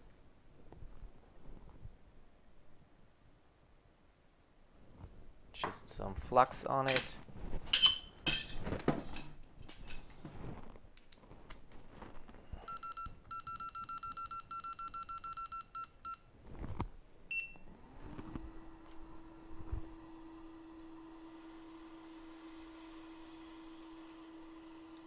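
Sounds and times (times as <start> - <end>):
blower spinning up and humming: 17.7 - 25.0.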